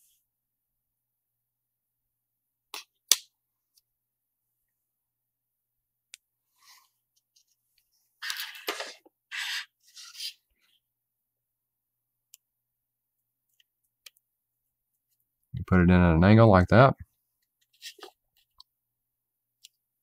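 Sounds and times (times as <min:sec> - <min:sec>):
scraping and rubbing of parts: 0:08.2 - 0:10.4.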